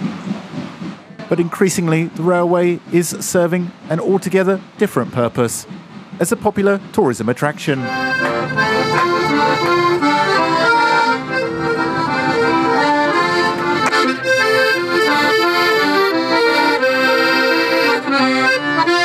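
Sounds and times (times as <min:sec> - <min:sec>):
accordion playing: 0:06.2 - 0:19.0.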